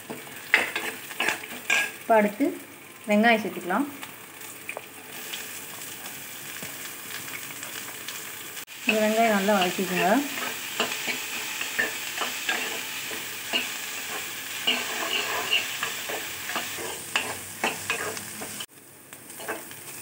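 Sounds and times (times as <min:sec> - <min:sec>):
oil sizzling: 0:00.0 - 0:20.0
metal ladle scraping pan: 0:00.5 - 0:02.0, 0:09.6 - 0:18.7.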